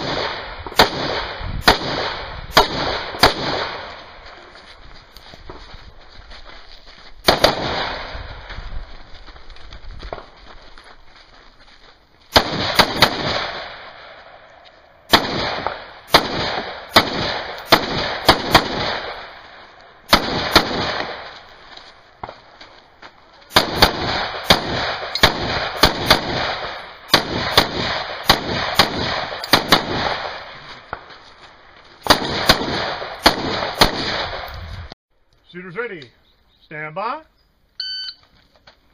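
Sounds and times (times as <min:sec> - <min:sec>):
rifle shots with echo: 0:00.0 - 0:04.3, 0:07.2 - 0:08.6, 0:12.3 - 0:21.5, 0:23.5 - 0:31.1, 0:32.0 - 0:34.6.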